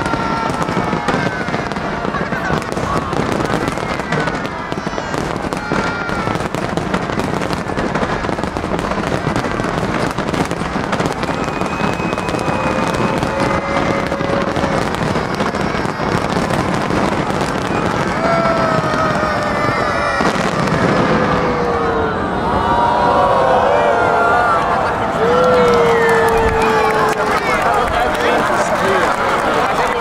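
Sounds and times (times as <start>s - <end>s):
fireworks bursting and crackling: 0.0s - 22.2s, 24.8s - 30.0s.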